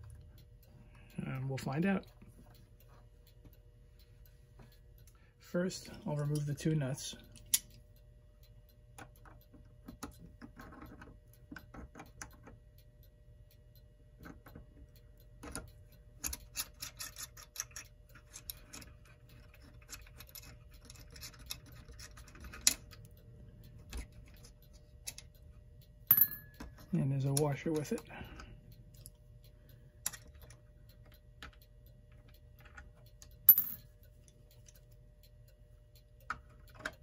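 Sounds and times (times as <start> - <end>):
metallic clicks of tool on nuts: 5.8 - 7.8, 8.9 - 12.9, 14.1 - 37.0.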